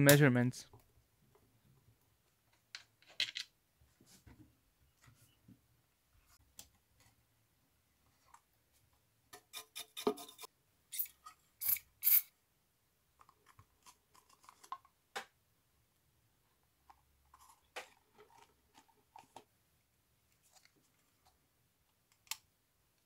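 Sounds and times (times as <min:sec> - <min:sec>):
plastic parts clicking and knocking: 0:02.5 - 0:03.5.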